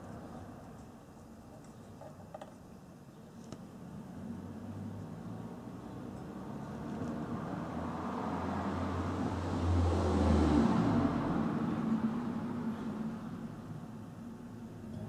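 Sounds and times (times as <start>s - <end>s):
vehicle engine hum and road noise: 3.4s - 15.0s.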